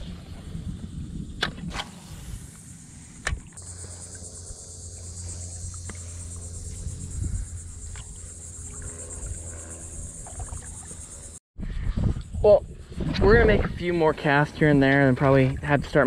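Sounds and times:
insects trilling: 1.9 - 11.4
low steady hum: 2.0 - 11.4.

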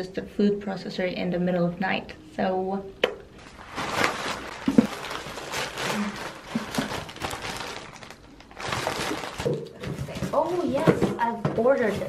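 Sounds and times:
parcels being torn open: 3.4 - 9.8
plastic packaging crinkling: 3.4 - 10.0.

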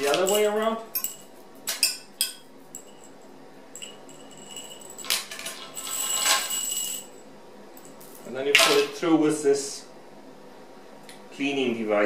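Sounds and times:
metal chain clinking and rattling: 0.0 - 7.2, 7.8 - 8.9.

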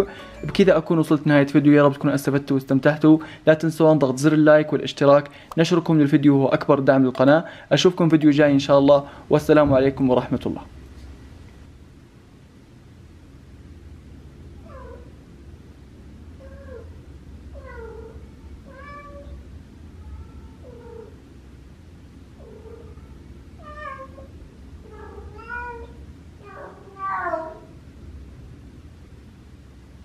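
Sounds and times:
cat meowing: 14.6 - 15.2, 16.4 - 16.9, 17.6 - 19.4, 20.0 - 21.2, 22.4 - 27.8.

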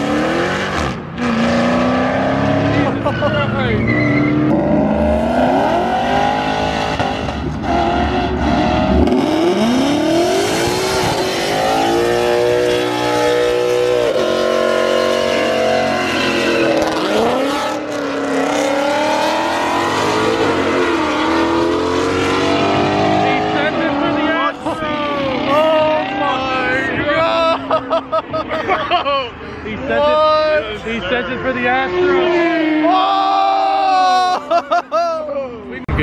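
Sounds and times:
car engine revving hard: 0.0 - 27.0
tyres squealing: 2.9 - 4.6.

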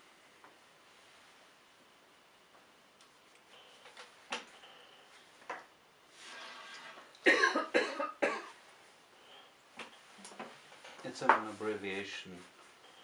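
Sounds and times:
person coughing: 7.2 - 8.6.

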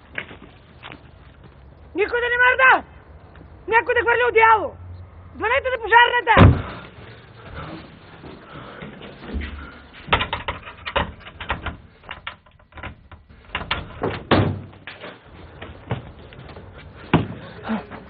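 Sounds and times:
door knocks and bangs: 6.4 - 6.7, 10.1 - 14.8
hurried footsteps: 6.4 - 12.2, 13.2 - 18.0.

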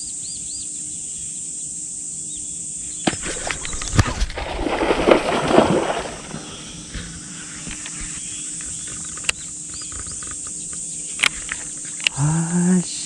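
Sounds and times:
insects chirring: 0.0 - 13.0
fish splashing at water surface: 3.1 - 6.9.

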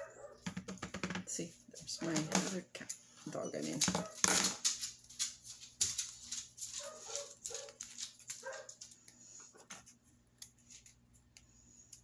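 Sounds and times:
clicks and rustles of handling: 3.6 - 12.0.

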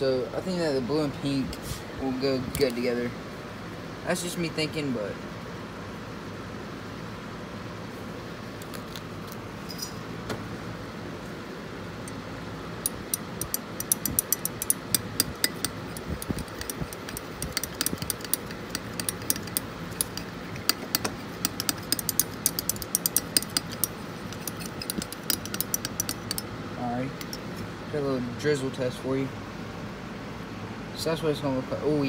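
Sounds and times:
steady low hum: 0.0 - 32.0
metal stirrer clinking against glass: 12.8 - 26.5, 27.2 - 27.5.

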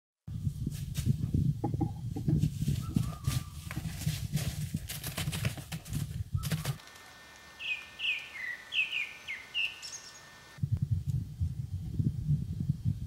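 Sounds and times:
sharp knocks and rustles: 0.9 - 7.0
small bird chirping: 7.5 - 10.6.

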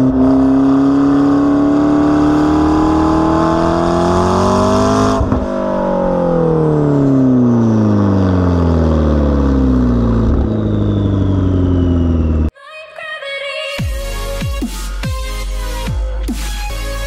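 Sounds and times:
car engine revving and idling: 0.0 - 12.5.

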